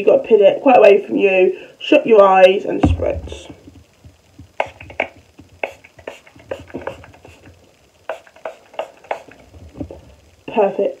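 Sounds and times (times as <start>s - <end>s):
spray bottle spritzing: 4.6s - 7.5s, 8.1s - 9.5s.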